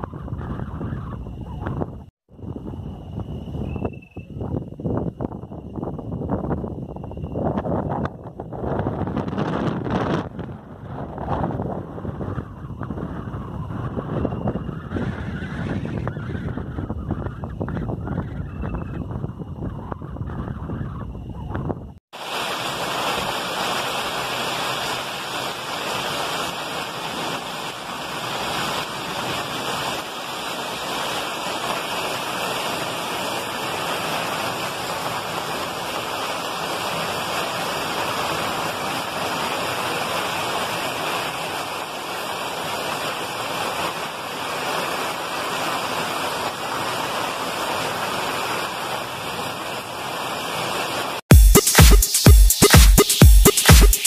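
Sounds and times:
heavy rain pouring: 22.2s - 51.3s.

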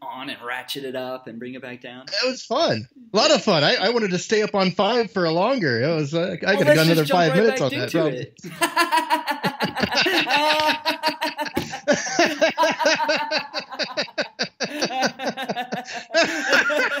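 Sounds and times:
men laughing: 6.6s - 17.0s.

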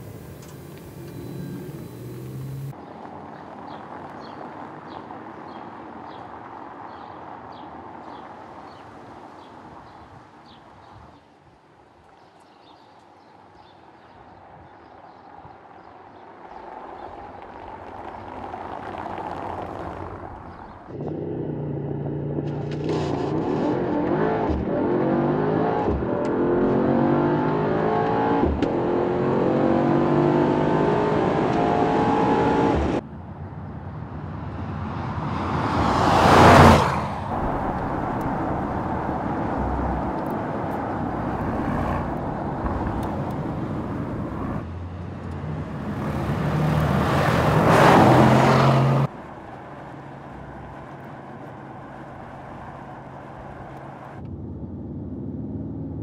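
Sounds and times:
car passing by: 0.0s - 2.7s, 34.5s - 54.2s
car engine hard acceleration: 0.0s - 2.8s, 20.9s - 33.0s, 34.4s - 56.0s.

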